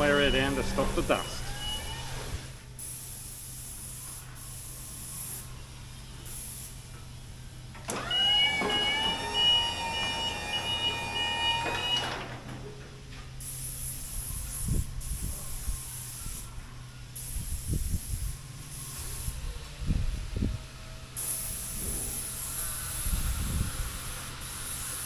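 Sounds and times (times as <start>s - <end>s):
spray gun hissing: 0.0s - 7.5s, 13.4s - 19.6s, 21.2s - 25.0s.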